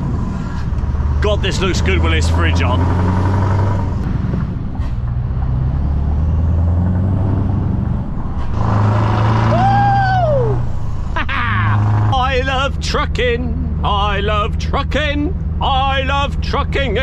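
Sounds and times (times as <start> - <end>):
lorry diesel engine accelerating: 0.0 - 17.0.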